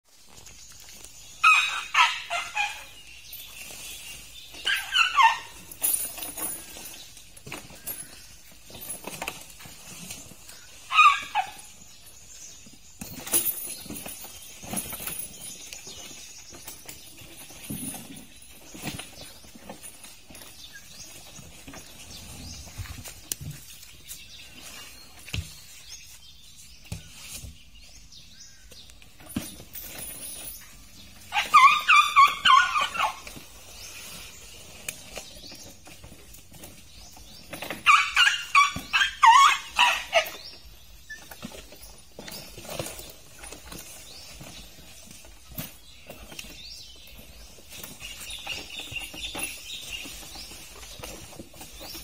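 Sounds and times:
elephant squeaking: 1.4s - 7.2s, 9.7s - 12.0s, 29.8s - 34.8s, 37.4s - 44.8s.

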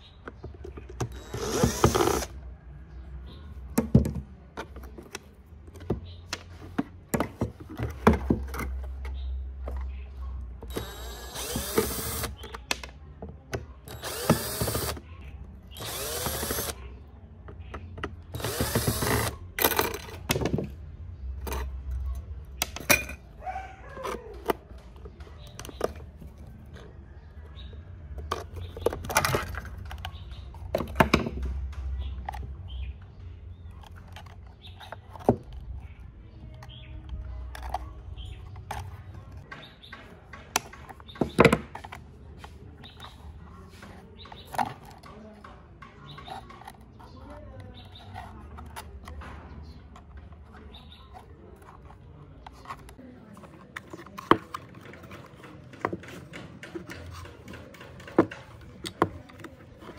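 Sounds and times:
cordless drill spinning: 1.0s - 2.4s, 10.7s - 12.5s, 13.9s - 15.0s, 15.7s - 16.8s, 18.4s - 19.3s.

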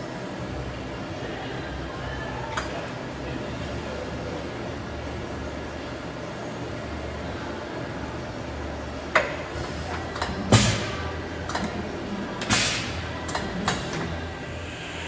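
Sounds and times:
machine low hum: 0.0s - 15.0s
mechanical clunks and clicks: 9.1s - 14.2s
air hiss: 12.4s - 13.0s.

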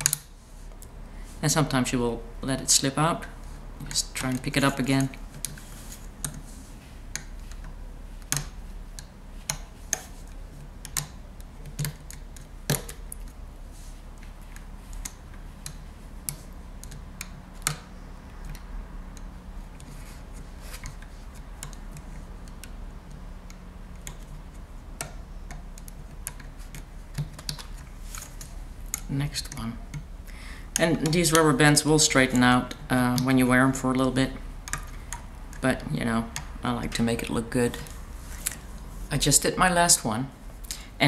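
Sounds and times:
small plastic clicks and taps: 20.7s - 30.1s.

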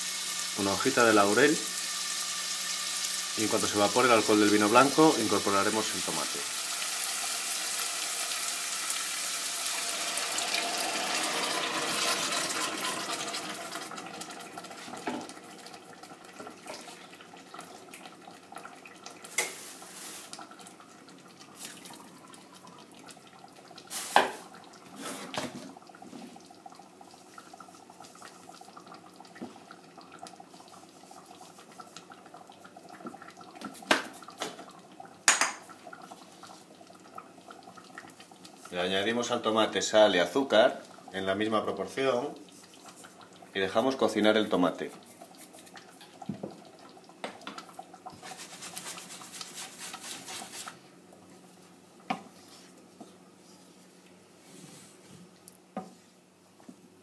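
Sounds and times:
food sizzling in a pot: 0.0s - 17.1s, 19.1s - 20.6s, 23.8s - 32.1s, 41.8s - 50.9s.

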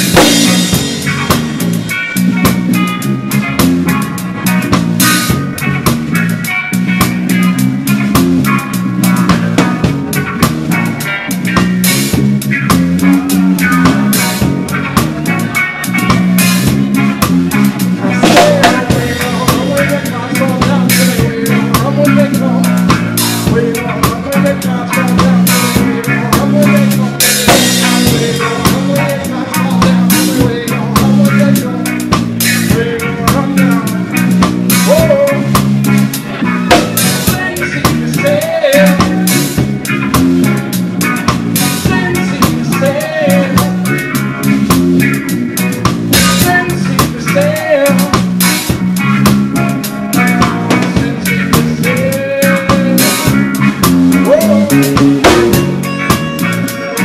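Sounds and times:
bass line: 0.0s - 57.0s
reggae band playing: 0.0s - 57.0s.

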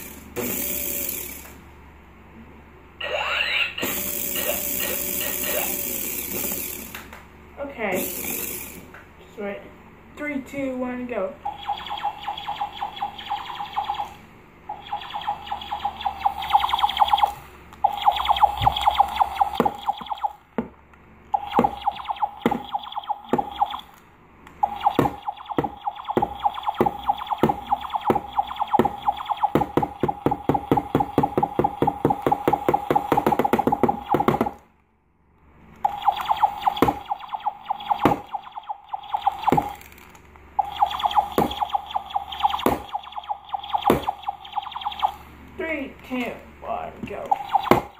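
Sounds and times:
buzzy electronic toy gun tone: 0.0s - 1.5s, 3.4s - 6.9s, 11.4s - 20.4s, 21.4s - 24.0s, 24.6s - 34.6s, 35.8s - 39.9s, 40.6s - 45.3s, 47.3s - 47.9s
rapid clicks: 11.5s - 20.4s, 21.2s - 34.6s.

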